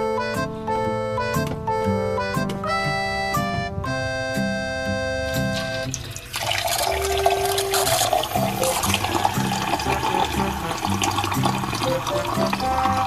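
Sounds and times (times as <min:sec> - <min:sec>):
water pouring into kettle: 0:05.8 - 0:13.0.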